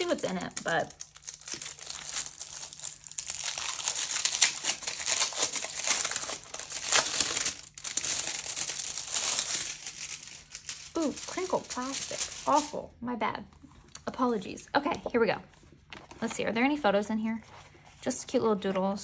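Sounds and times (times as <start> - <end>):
plastic wrapping crinkling: 0.0 - 12.9.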